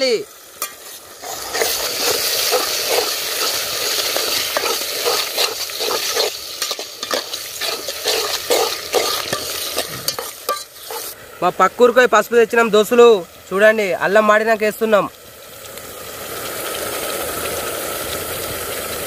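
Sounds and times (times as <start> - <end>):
vegetables sizzling in hot oil: 0.0 - 12.1, 12.7 - 19.0
steel spoon scraping a pot: 0.6 - 11.2.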